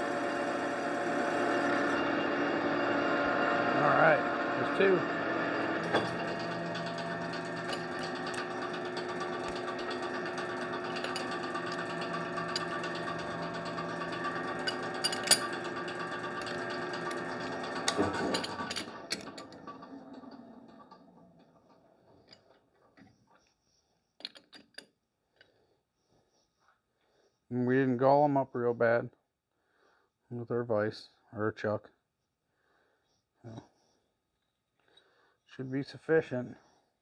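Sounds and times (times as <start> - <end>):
lathe running and coasting down: 0.0 - 22.6
clicks and knocks: 5.8 - 23.1.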